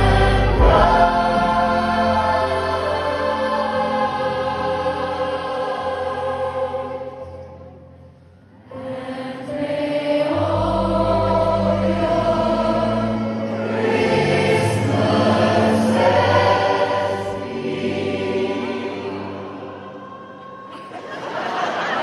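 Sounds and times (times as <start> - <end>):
instrumental accompaniment: 0.0 - 5.5, 9.8 - 18.9
gospel choir singing: 0.0 - 22.0.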